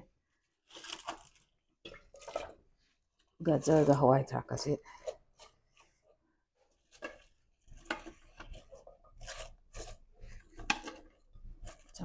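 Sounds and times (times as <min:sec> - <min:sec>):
vegetables rustling and crunching: 0:00.3 - 0:12.0.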